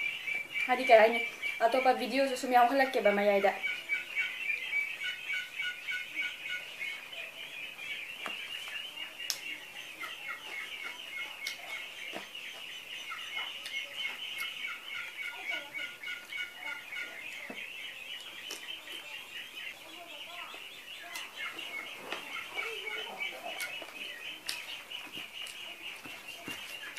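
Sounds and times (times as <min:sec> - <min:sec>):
ducks quacking: 0:00.0 - 0:26.9.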